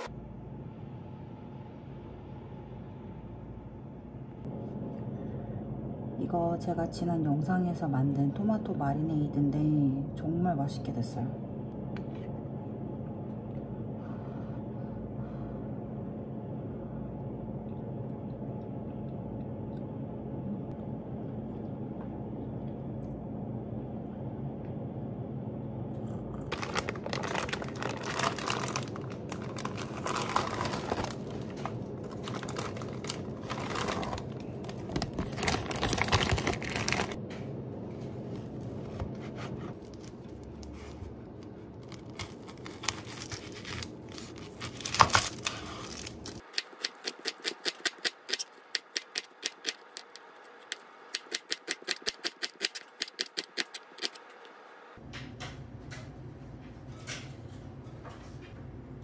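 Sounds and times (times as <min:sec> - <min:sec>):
steady low hum: 0:00.0 - 0:59.0
packaging crinkling and rustling: 0:26.5 - 0:37.2, 0:39.6 - 0:46.5.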